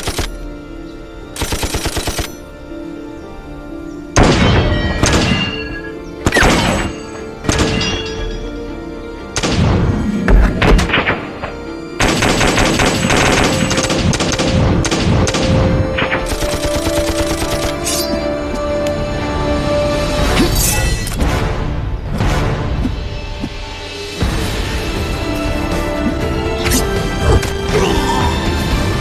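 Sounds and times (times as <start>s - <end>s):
dramatic music: 0.0s - 29.0s
rapid machine-gun fire: 12.0s - 15.6s
heavy gunshots: 12.0s - 17.6s.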